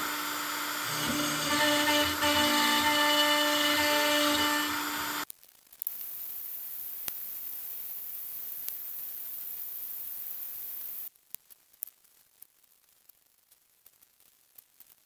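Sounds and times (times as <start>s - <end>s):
steady high hiss: 5.9s - 11.1s.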